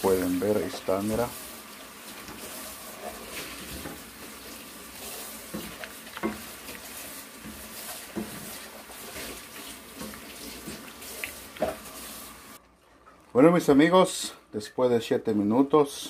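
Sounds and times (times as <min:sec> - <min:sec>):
shrimp sizzling in oil: 0:00.0 - 0:12.6.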